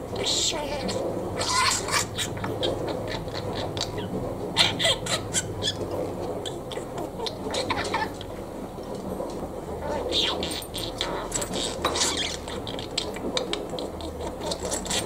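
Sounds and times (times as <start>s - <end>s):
budgerigar mimicking laughter: 1.4s - 8.3s, 10.2s - 15.0s.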